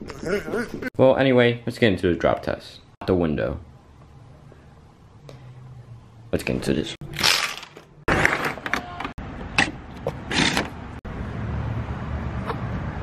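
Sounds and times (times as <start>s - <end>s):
low outdoor hum: 1.4s - 8.0s.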